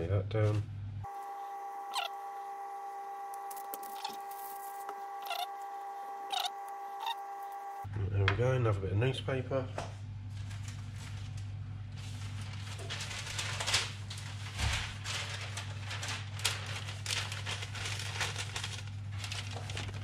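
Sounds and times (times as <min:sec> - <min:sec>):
newspaper rustling: 0:03.4 - 0:07.0, 0:10.3 - 0:20.0.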